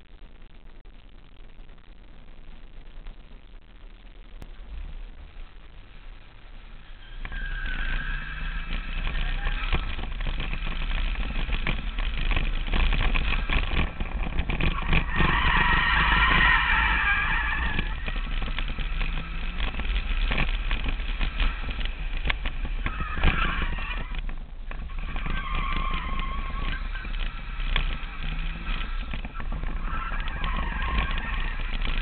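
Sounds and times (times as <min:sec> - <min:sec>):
car engine revving: 0:06.5 - 0:32.0
tyre squeal: 0:06.8 - 0:32.0.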